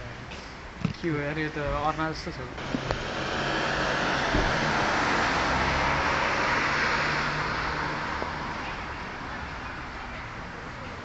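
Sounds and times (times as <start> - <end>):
vehicle passing: 2.6 - 9.1.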